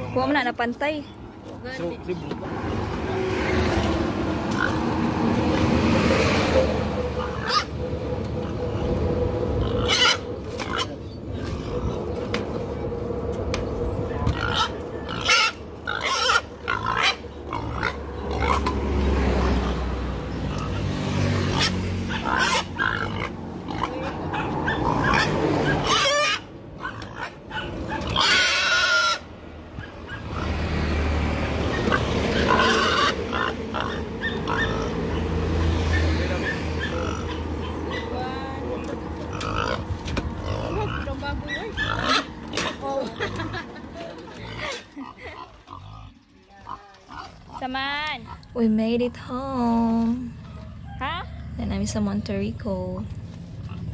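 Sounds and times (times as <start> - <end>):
pig grunting and squealing: 4.5 - 4.9, 6.2 - 12.3, 14.2 - 30.9, 31.6 - 43.6, 44.3 - 48.6.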